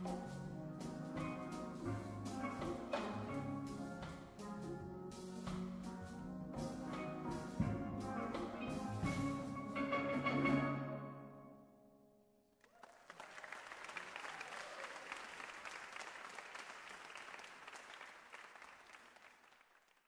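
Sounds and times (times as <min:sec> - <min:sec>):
audience applauding: 0:12.6 - 0:20.0.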